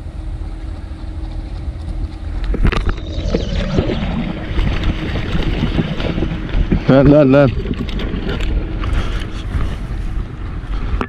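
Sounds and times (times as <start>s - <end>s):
wind on microphone: 1.6s - 11.0s
fish splashing in water: 2.7s - 9.8s.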